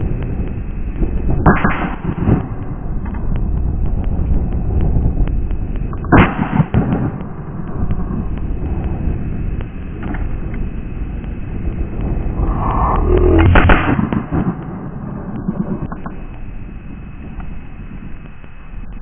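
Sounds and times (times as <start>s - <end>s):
wind buffeting microphone: 6.7s - 15.9s.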